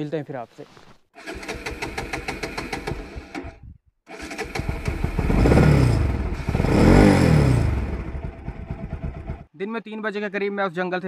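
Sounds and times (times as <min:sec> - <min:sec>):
motorcycle engine idling and revving: 0:01.2 - 0:09.5.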